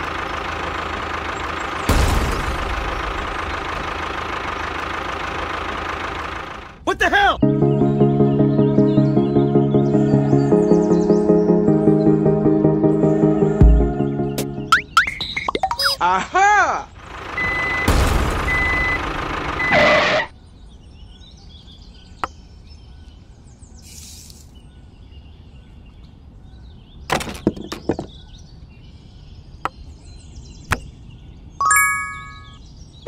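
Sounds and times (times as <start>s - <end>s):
engine running: 0.0s - 6.8s, 16.9s - 20.3s
reversing beeper: 17.4s - 20.3s
short bright chime: 31.6s - 32.6s.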